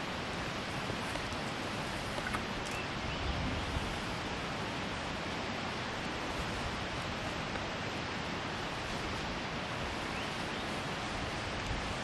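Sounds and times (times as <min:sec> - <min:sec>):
steady outdoor rushing noise: 0:00.0 - 0:12.0.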